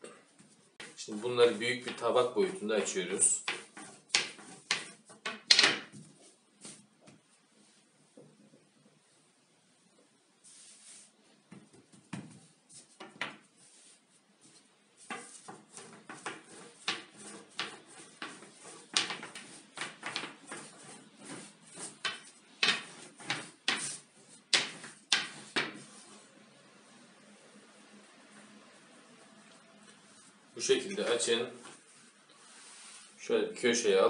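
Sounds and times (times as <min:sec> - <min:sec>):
rolling pin knocking on countertop: 0:03.4 - 0:06.1, 0:15.1 - 0:25.9.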